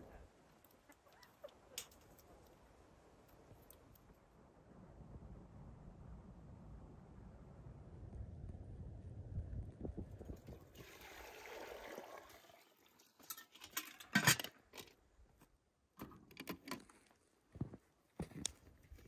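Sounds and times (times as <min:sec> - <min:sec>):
water pouring hiss: 0:10.7 - 0:13.0
metal kettles clicking and knocking: 0:13.2 - 0:14.9.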